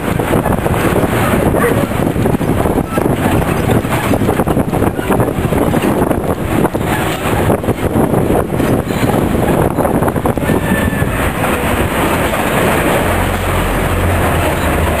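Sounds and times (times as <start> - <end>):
knocks and rattles: 0.0 - 15.0
moving vehicle running noise: 0.0 - 15.0.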